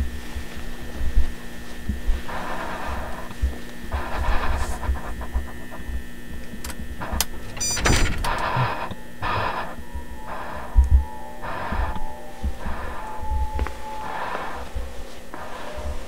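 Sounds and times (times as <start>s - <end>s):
electrical hum: 0.0s - 16.0s
person breathing heavily: 9.8s - 16.0s.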